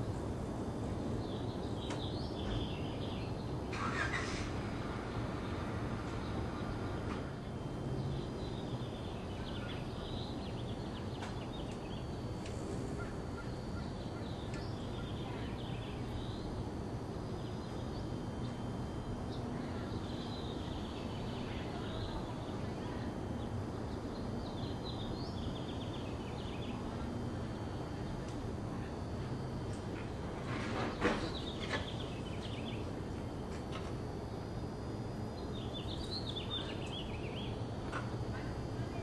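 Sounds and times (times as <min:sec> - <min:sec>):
small birds chirping: 0:01.0 - 0:04.6, 0:05.4 - 0:33.0, 0:33.7 - 0:39.0.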